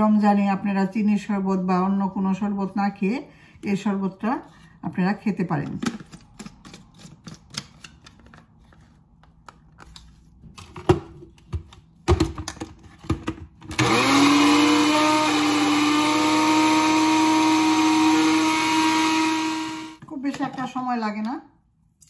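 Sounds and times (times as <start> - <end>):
blender motor whirring: 13.7 - 20.0.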